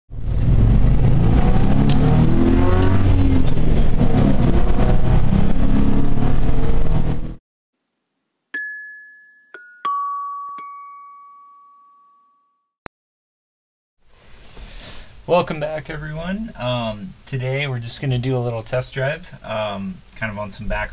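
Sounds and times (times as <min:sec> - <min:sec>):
engine and road noise in cab: 0:00.1 - 0:07.4
chime notes stepping down: 0:08.6 - 0:12.6.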